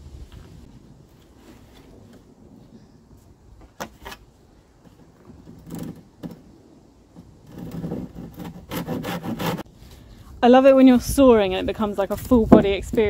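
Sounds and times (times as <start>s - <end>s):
knocks and short scrapes: 3.7s - 9.6s
hand saw sawing board: 7.4s - 9.7s.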